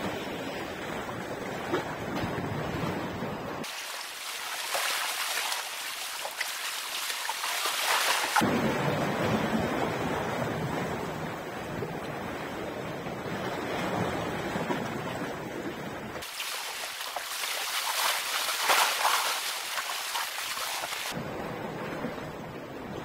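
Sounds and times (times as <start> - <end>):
waves washing against rocks: 3.6 - 10.6, 16.2 - 21.2.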